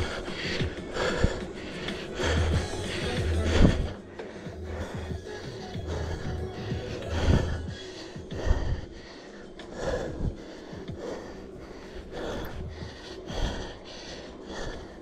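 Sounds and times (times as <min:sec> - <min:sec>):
low rumble: 0:00.0 - 0:09.0
cyclist breathing hard: 0:00.0 - 0:15.0.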